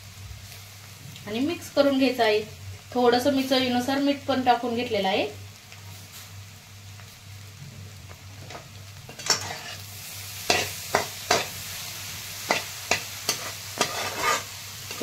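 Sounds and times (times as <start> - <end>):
light sizzle: 0.0 - 15.0
spatula scraping frying pan: 9.1 - 11.6, 12.4 - 15.0.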